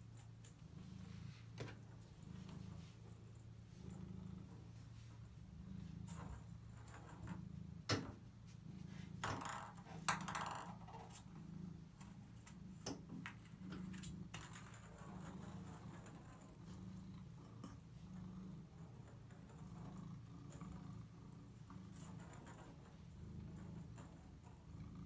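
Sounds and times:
cat purring: 0:00.0 - 0:25.0
ball rattling roll: 0:05.8 - 0:08.4, 0:09.1 - 0:25.0
ping pong ball clicking on bathtub: 0:09.2 - 0:11.2.

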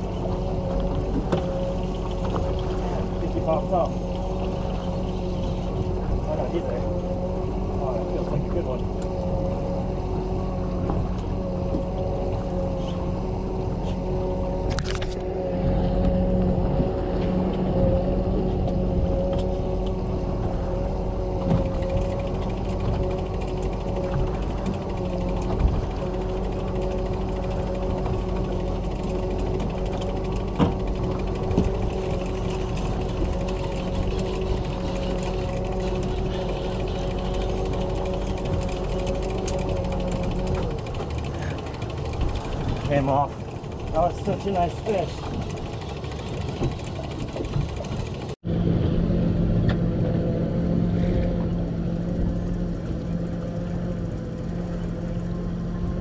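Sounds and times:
boat motor running: 0:00.0 - 0:56.0
fishing gear clicks and knocks: 0:21.4 - 0:48.3.

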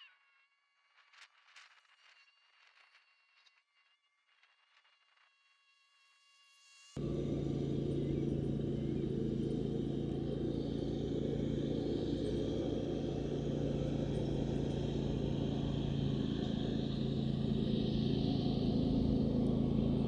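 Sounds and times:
mechanical hum with low rumble: 0:07.0 - 0:20.0.

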